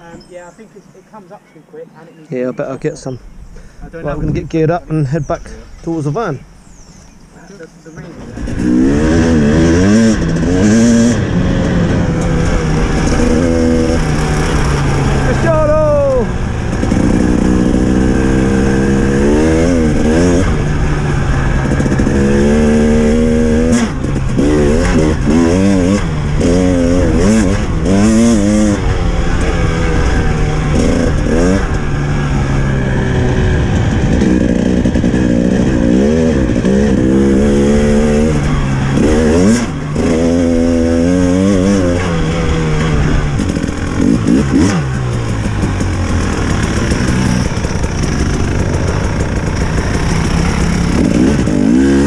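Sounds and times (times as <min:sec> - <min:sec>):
dirt bike engine revving: 0:02.9 - 0:52.0.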